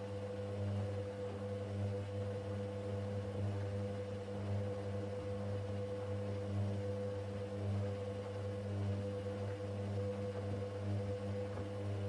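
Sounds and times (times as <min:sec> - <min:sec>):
washing machine humming: 0:00.0 - 0:12.0.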